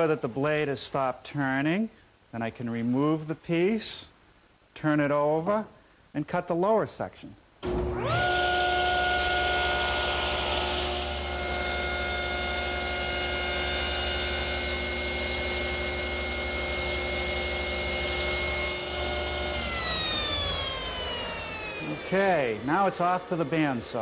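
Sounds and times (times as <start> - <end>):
table saw whining: 7.6 - 24.0
saw blade cutting wood: 8.1 - 24.0.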